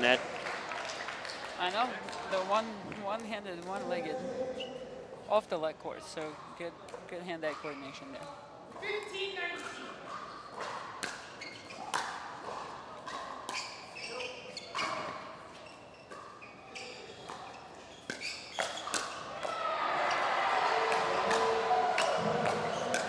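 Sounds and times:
crowd noise: 0.0 - 11.4, 16.3 - 23.0.

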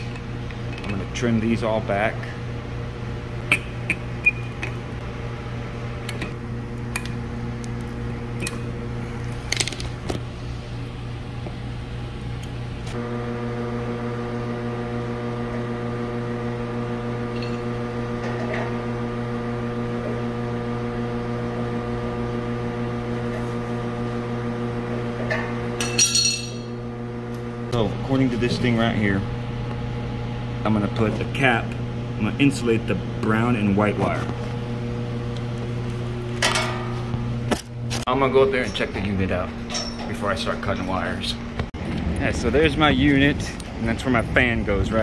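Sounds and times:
low hum of machinery: 0.0 - 45.0.

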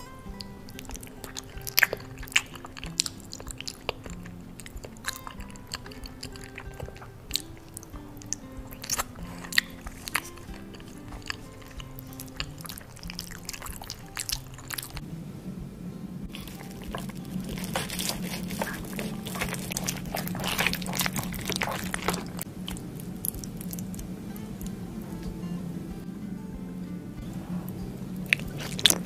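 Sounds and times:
wet chewing and mouth clicks: 0.0 - 15.0, 16.3 - 25.4, 27.2 - 29.0
quiet background music: 0.0 - 29.0
knife and fork cutting food: 0.3 - 15.0, 16.3 - 23.9, 28.3 - 29.0.

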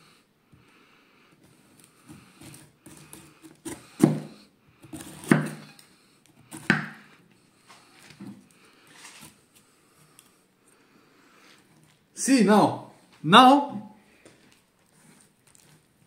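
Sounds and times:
knife cutting and scraping: 1.4 - 10.4, 14.8 - 16.0
knife knocking on wooden board: 6.6 - 7.0.

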